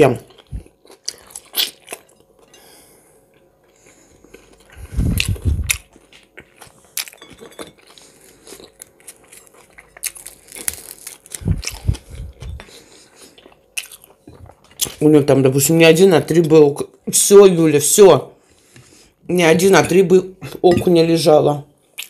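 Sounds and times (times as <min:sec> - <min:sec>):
chewing and biting food: 0:00.1 - 0:02.5, 0:03.3 - 0:15.1.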